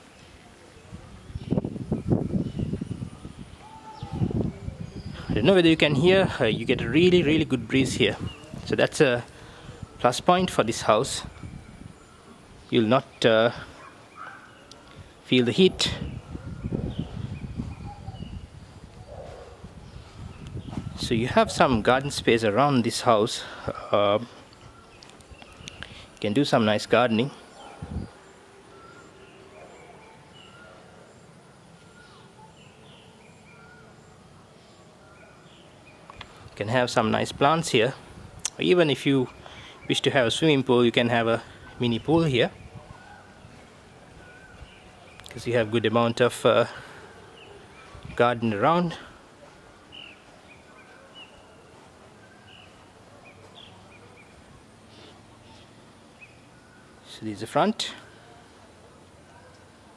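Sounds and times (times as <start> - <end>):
birds chirping: 0.0 - 59.9
outdoor background noise: 0.0 - 59.9
faint whistled bird calls: 2.6 - 5.4.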